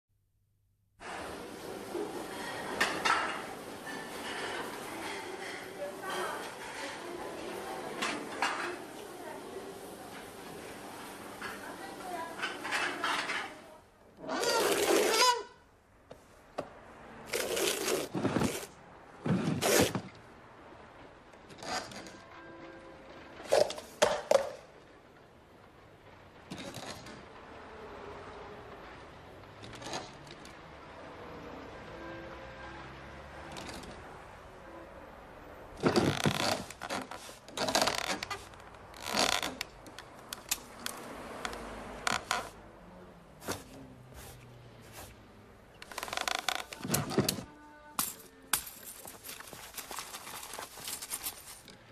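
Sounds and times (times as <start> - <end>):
chair scraping on floor: 1.0 - 9.0, 14.2 - 15.5, 17.2 - 20.3, 21.4 - 24.6, 32.8 - 34.2, 35.7 - 42.6, 43.4 - 47.5
scraping and rustling: 17.3 - 20.2, 35.8 - 42.6, 43.3 - 51.9.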